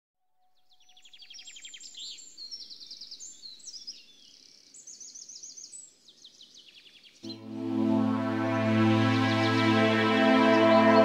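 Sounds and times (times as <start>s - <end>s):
songbirds trilling and chirping: 0.6s - 7.4s.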